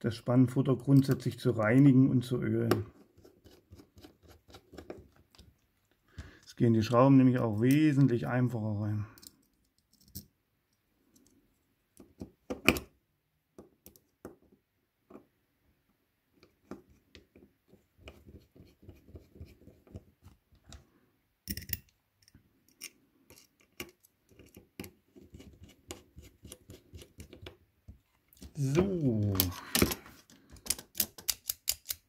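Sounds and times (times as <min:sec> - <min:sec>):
screwdriver clicks and scrapes: 0:21.5 - 0:27.5, 0:29.4 - 0:32.0.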